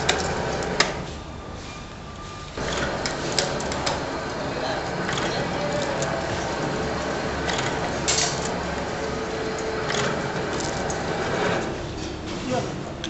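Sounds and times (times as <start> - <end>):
bottling machine clatter: 2.6 - 12.9.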